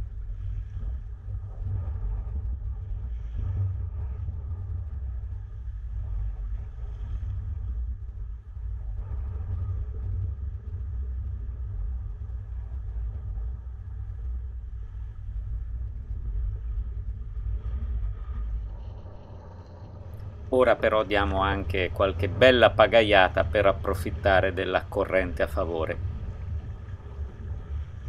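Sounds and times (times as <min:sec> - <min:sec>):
wind buffeting microphone: 0:15.4 - 0:28.0.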